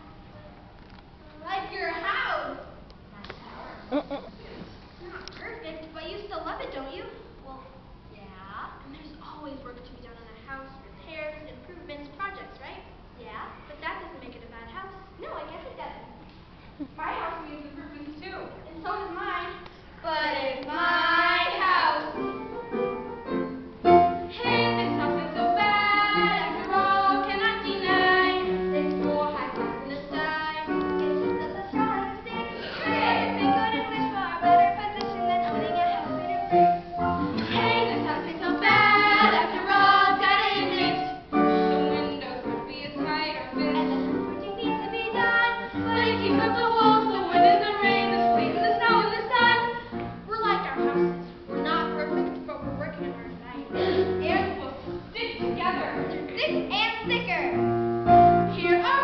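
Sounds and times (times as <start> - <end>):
young voices singing together: 20.0 - 22.4, 24.3 - 50.0
instrumental accompaniment: 20.7 - 59.0.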